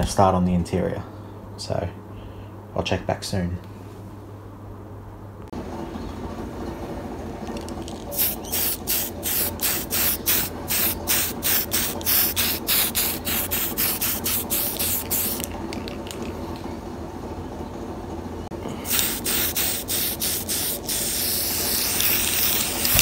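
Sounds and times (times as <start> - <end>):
spray can hissing bursts: 8.0 - 15.5, 18.8 - 23.0.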